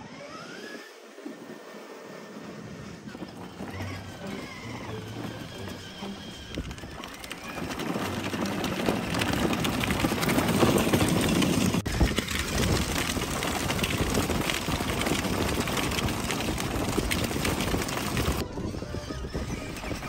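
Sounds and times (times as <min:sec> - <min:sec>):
toy car wheels crunching on gravel: 0:02.5 - 0:20.0.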